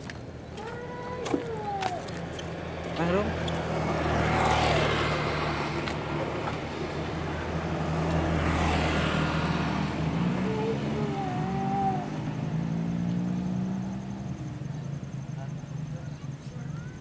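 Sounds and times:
small petrol engine running: 2.1 - 14.0.

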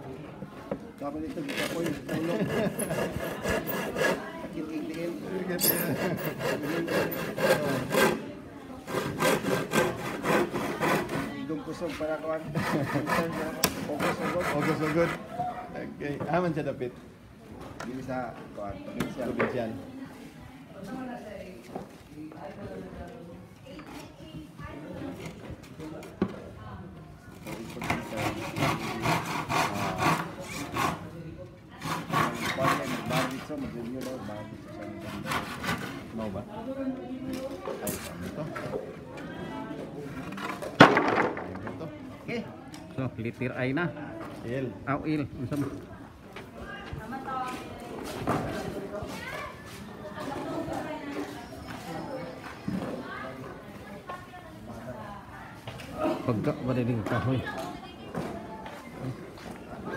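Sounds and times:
hand saw cutting plywood: 1.3 - 4.5, 5.7 - 15.3, 27.4 - 31.1, 31.8 - 34.1, 34.8 - 36.4.

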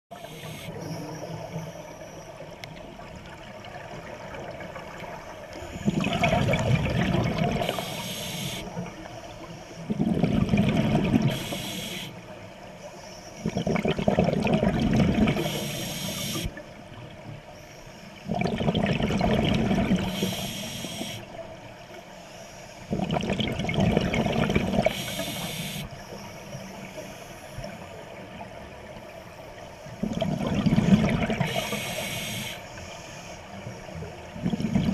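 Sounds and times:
diver breathing through regulator: 0.1 - 0.8, 7.4 - 8.8, 11.2 - 12.2, 15.4 - 16.6, 20.0 - 21.3, 24.7 - 25.9, 31.3 - 33.4
rush of bubbles: 5.8 - 8.0, 9.9 - 11.6, 13.4 - 15.6, 18.3 - 20.2, 22.9 - 25.0, 30.0 - 31.8, 34.4 - 34.9.

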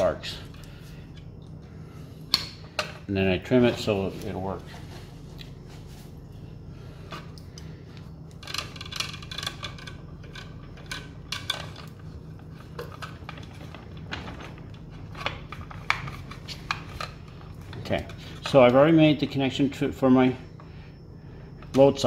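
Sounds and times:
low hum: 0.0 - 22.0.

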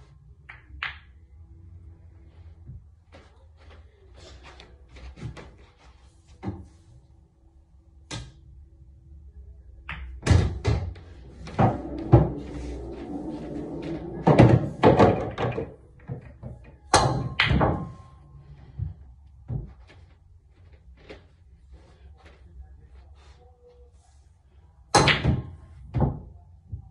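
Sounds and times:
pool balls knocking together: 9.9 - 18.1
cue striking pool ball: 11.4 - 15.8.

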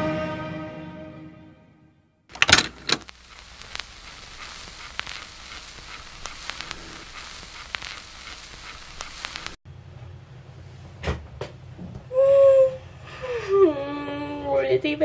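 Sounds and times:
cassette mechanism clicking: 2.3 - 3.1
tape hiss with crackles: 2.3 - 9.6.

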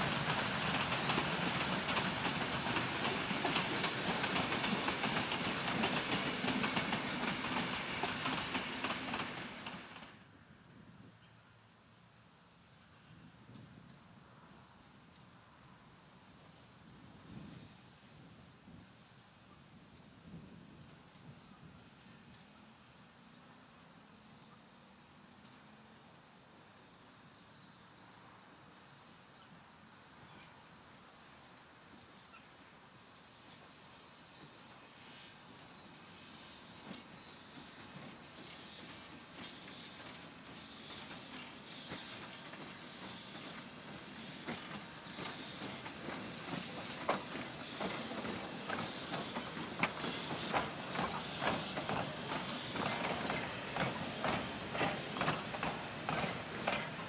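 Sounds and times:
train wheels clickety-clack: 0.0 - 10.2, 33.5 - 57.0.

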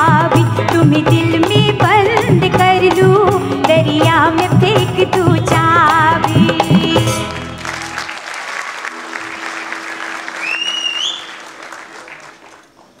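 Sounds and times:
live band playing: 0.0 - 12.7
audience applause: 7.3 - 13.0
short rising whistle: 10.3 - 11.6.

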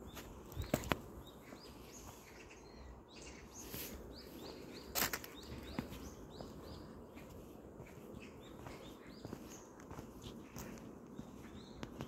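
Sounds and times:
small bird chirping: 0.0 - 12.0
footsteps crunching on dirt and leaves: 3.6 - 12.0.

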